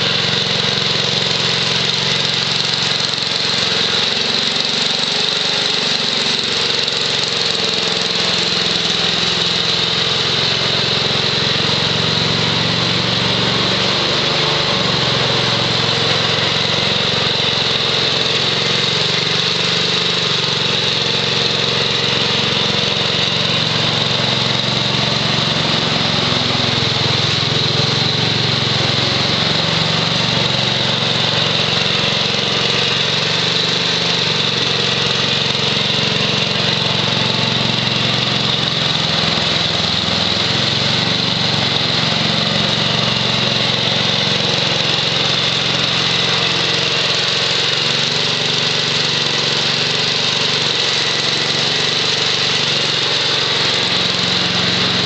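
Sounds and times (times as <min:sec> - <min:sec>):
small engine running steadily: 0:00.0 - 0:55.0.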